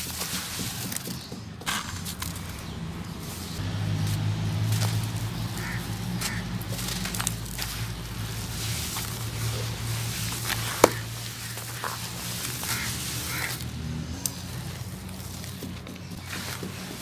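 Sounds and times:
crunching dry cement clumps: 0.0 - 17.0
sharp crack: 1.6 - 14.5.

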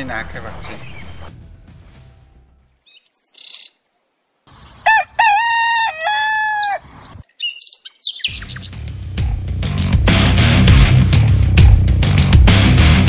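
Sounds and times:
small birds chirping: 0.0 - 1.3, 2.8 - 5.2, 6.4 - 8.8
rooster crowing: 4.5 - 6.9.

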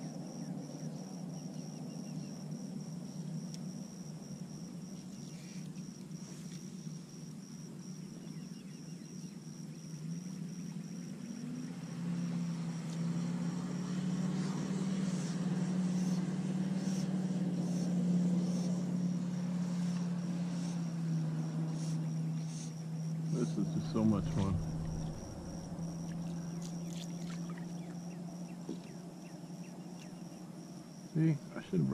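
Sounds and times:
high insect buzz: 0.0 - 31.9
motor droning: 11.6 - 30.2.

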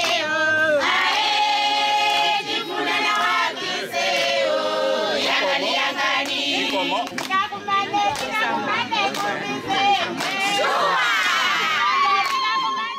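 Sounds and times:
women singing in chorus: 0.0 - 12.9.

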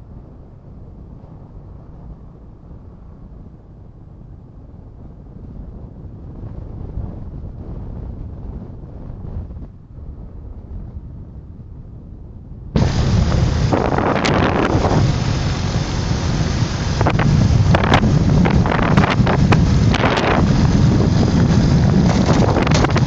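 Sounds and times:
wind buffeting microphone: 0.0 - 23.0
buggy engine running: 12.8 - 23.0.

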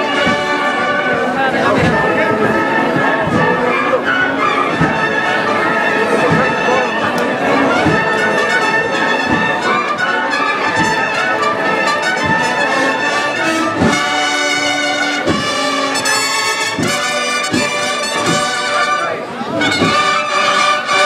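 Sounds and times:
drum beat: 0.0 - 3.6, 6.0 - 7.0, 7.7 - 19.0, 19.6 - 20.4
brass band playing a slow march: 0.0 - 21.0.

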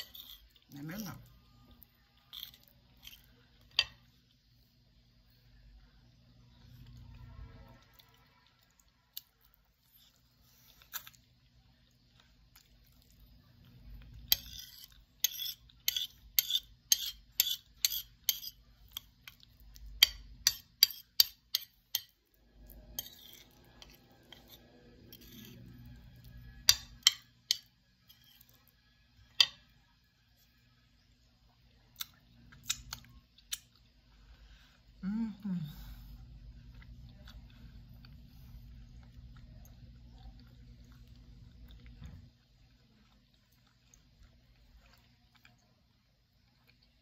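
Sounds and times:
fork scraping a plate: 0.0 - 1.2, 2.3 - 4.0, 14.1 - 19.1, 20.4 - 28.7
chewing with sharp crunches: 36.4 - 47.0.

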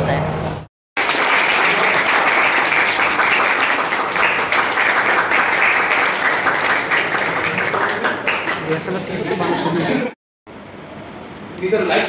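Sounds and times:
group applause: 1.0 - 10.2.

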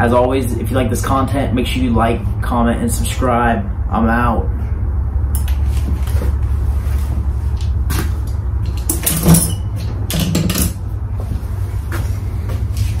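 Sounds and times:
steady low hum: 0.0 - 13.0
knocks and clatter of moving about: 5.5 - 13.0.

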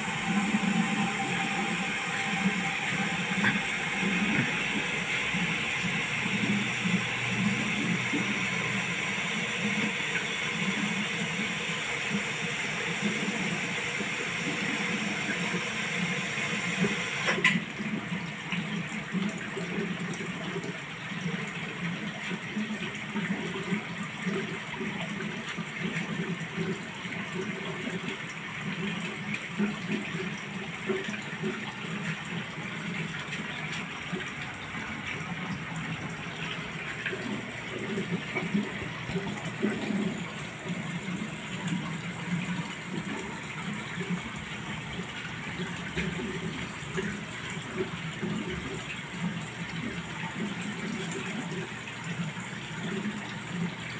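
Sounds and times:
aquarium water bubbling: 0.0 - 53.9.

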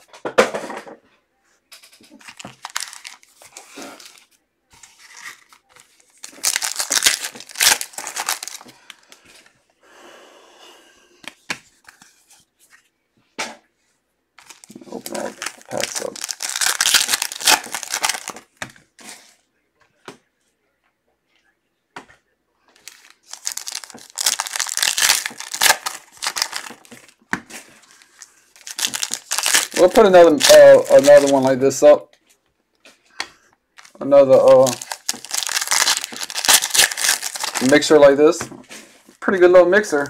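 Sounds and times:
foil wrappers tearing and crinkling: 2.2 - 4.3, 5.0 - 9.2, 14.4 - 18.4, 22.8 - 27.1, 27.8 - 31.5, 33.8 - 38.1.

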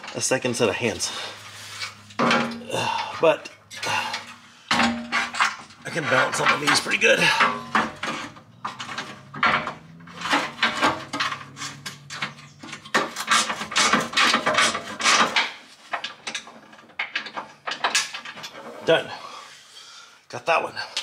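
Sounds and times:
metal parts clinking and rattling: 0.0 - 19.1.

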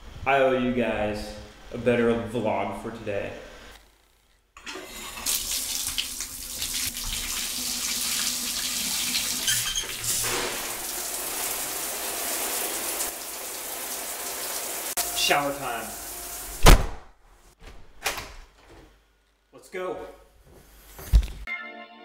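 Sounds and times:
water gushing into bathtub: 4.6 - 15.0
shower spray: 5.0 - 16.6.

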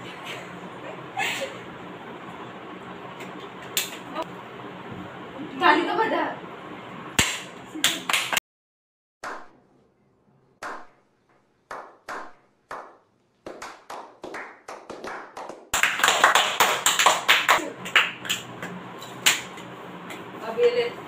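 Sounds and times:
hand clapping: 7.2 - 8.4, 10.6 - 10.9, 11.7 - 20.2
several people clapping fast: 7.2 - 8.4, 11.7 - 19.5.

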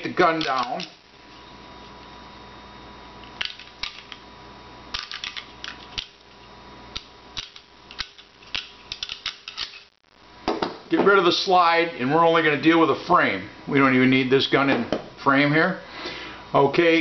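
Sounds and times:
faint steady hum: 0.0 - 17.0
pistol parts clicking: 0.4 - 1.0, 7.0 - 9.8.

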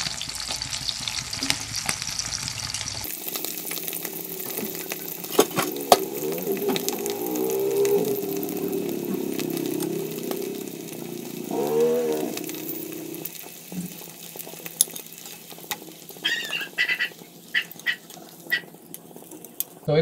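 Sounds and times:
fish frying in hot oil: 0.0 - 20.0
low pitched drone: 3.0 - 13.9
short animal-like calls: 5.6 - 13.2, 16.2 - 18.7.

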